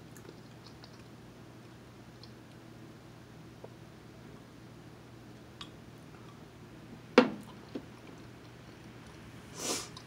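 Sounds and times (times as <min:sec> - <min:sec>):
low room hum: 0:00.0 - 0:10.0.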